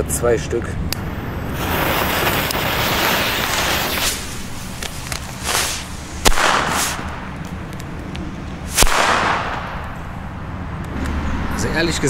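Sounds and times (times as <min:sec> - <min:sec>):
firecracker bangs with echo: 0:05.4 - 0:07.4, 0:08.7 - 0:10.0.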